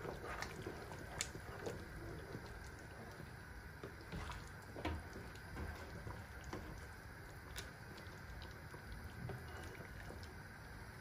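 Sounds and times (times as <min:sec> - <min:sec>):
sauce simmering with wet pops: 0:00.0 - 0:11.0.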